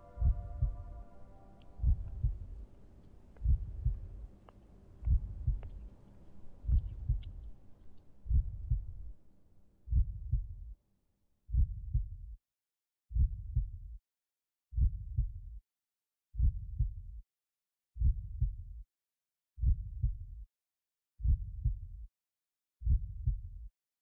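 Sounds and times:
heartbeat thumps: 0.0 - 1.0, 1.8 - 2.6, 3.4 - 4.3, 5.0 - 5.9, 6.6 - 7.5, 8.3 - 9.1, 9.9 - 10.7, 11.5 - 12.4, 13.1 - 13.9, 14.8 - 15.6, 16.4 - 17.2, 18.0 - 18.8, 19.6 - 20.4, 21.2 - 22.0, 22.8 - 23.7.

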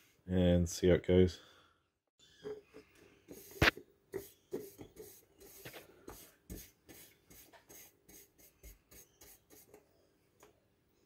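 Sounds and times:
paintbrush scrubbing on metal: 3.3 - 9.8.

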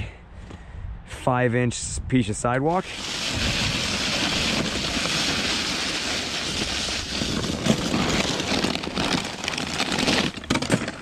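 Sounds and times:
snow shovel scraping pavement: 2.8 - 11.0.

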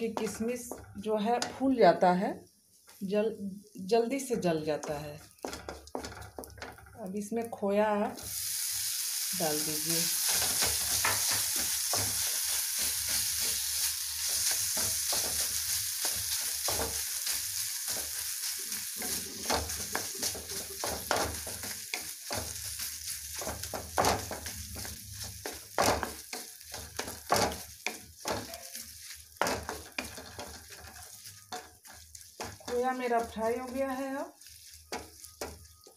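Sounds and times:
food sizzling in a pan: 0.0 - 35.9
spatula scraping a pan: 10.2 - 35.9.

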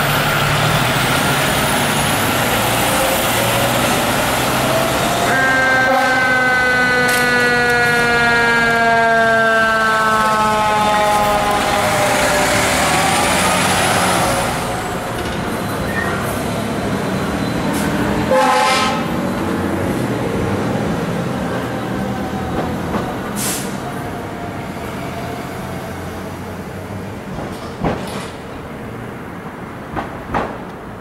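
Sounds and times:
diesel truck engines rumbling: 0.0 - 31.0
siren wail: 4.7 - 15.2
air horn blast: 5.2 - 8.8, 18.3 - 19.2
air brake hiss: 23.4 - 23.8.

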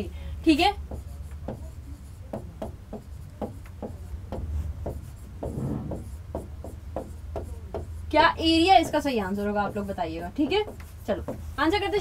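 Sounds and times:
steady low hum: 0.0 - 12.0
stylus tapping on pen tablet: 0.8 - 1.7, 2.3 - 8.0, 10.4 - 11.5.

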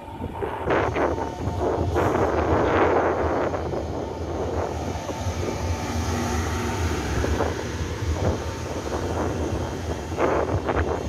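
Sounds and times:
train rumbling slowly: 0.0 - 11.0
wind buffeting microphone: 0.0 - 11.0.

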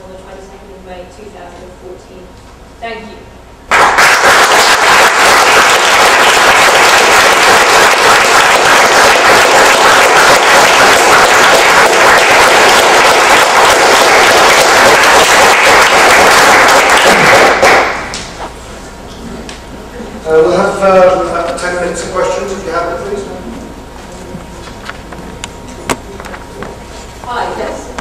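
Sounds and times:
audience applauding: 3.7 - 18.2.

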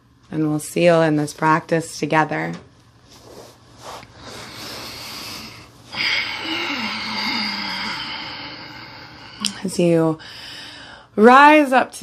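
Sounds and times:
person breathing deeply: 3.8 - 11.2.

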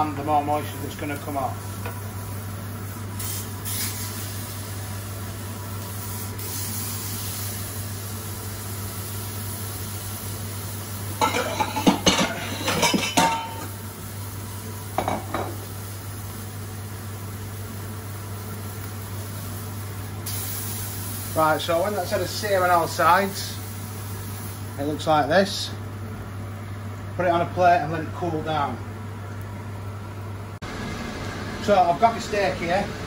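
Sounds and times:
extractor fan hum: 0.0 - 33.0
meat sizzling in a frying pan: 1.1 - 25.3
pan and utensils clattering: 11.2 - 13.8, 15.0 - 15.6.

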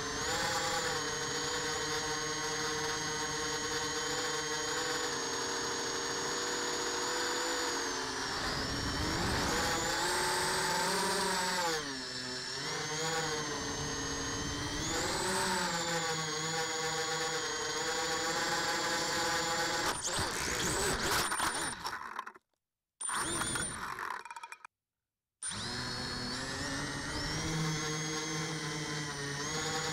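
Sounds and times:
drone motors whining: 0.0 - 22.4, 23.0 - 24.4, 25.4 - 29.9.

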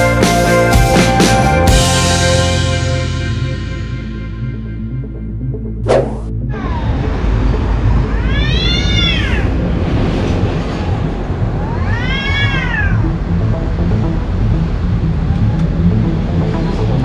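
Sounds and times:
cats yowling in a fight: 8.1 - 9.6, 11.6 - 13.0.

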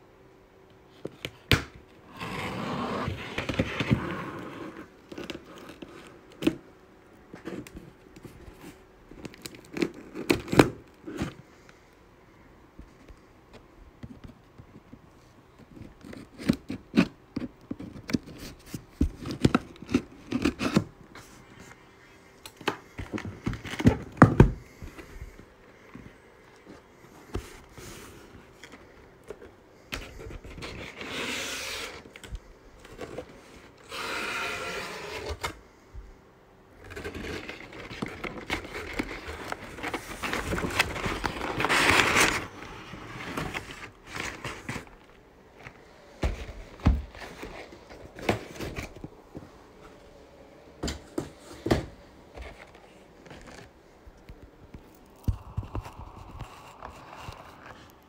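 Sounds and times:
paper packing rustling: 36.8 - 49.2, 51.1 - 53.8.

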